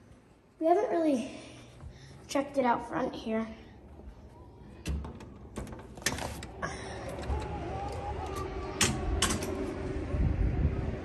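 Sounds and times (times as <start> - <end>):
outdoor noise with low rumble: 0.0 - 11.0.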